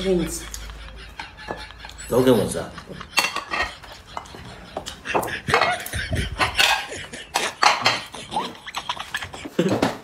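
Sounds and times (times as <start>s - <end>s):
man chewing and mouth-smacking: 3.6s - 10.0s.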